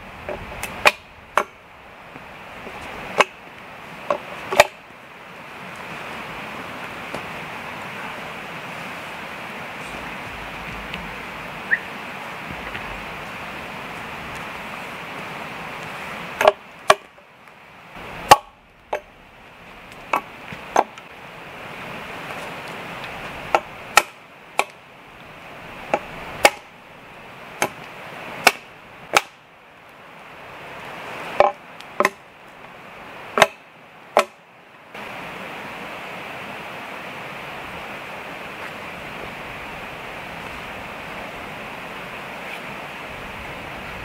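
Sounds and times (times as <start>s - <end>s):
steady background hiss: 0.0s - 44.0s
axe chopping wood: 18.3s - 19.0s, 23.5s - 24.8s, 25.9s - 26.7s, 28.4s - 29.4s, 31.4s - 32.2s, 33.4s - 33.6s, 34.2s - 34.4s.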